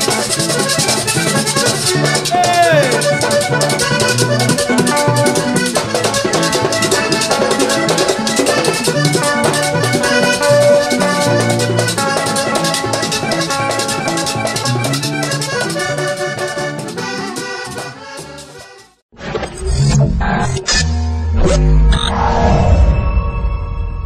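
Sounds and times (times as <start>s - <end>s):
electric bass: 0.0s - 17.8s, 19.5s - 23.1s
caja drum: 0.0s - 18.0s
fast high percussion rhythm: 0.0s - 18.4s
button accordion melody: 0.0s - 19.0s.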